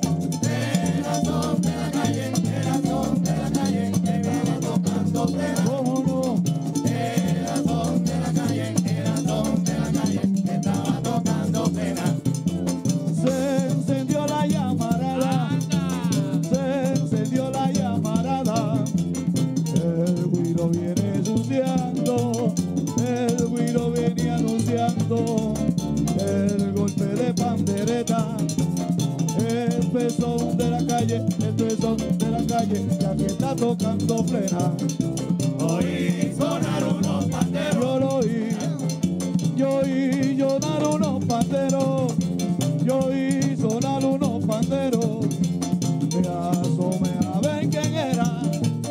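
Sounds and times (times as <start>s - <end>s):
men singing in unison: 0.0s - 19.1s, 19.7s - 28.6s, 29.3s - 48.9s
conga drums: 0.0s - 48.9s
frame drums: 0.0s - 48.9s
scraped guiro: 0.0s - 48.9s.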